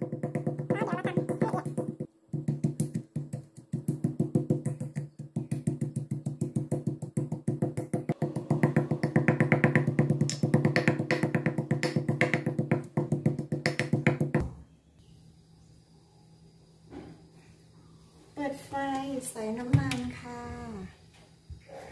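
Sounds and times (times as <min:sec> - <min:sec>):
metal pestle pounding in mortar: 0:00.0 - 0:14.4.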